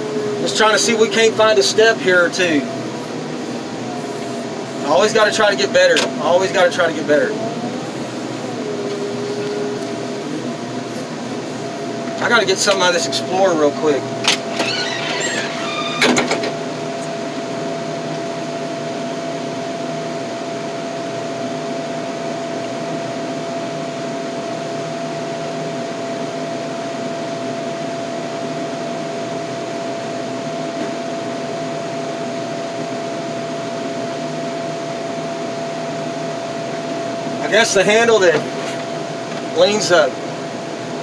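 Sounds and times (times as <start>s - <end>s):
diesel engine idling: 0.0s - 14.7s.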